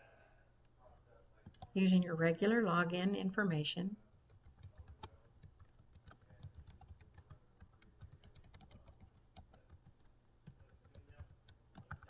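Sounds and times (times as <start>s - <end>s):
typing on computer keyboard: 1.4s - 1.8s, 4.1s - 12.0s.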